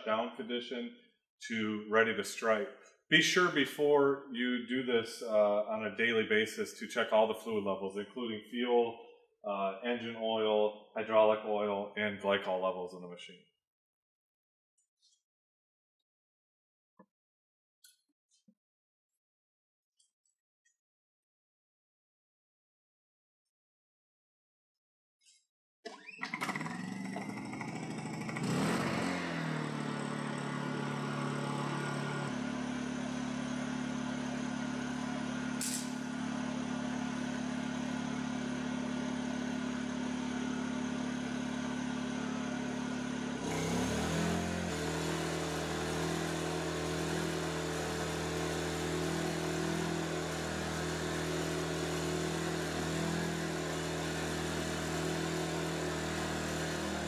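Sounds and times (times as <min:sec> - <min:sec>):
generator engine running: 0:26.0 - 0:57.0.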